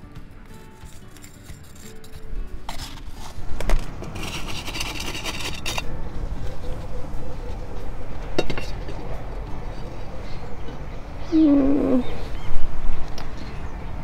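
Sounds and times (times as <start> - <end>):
gravel rattling onto soil: 0.6 - 5.9.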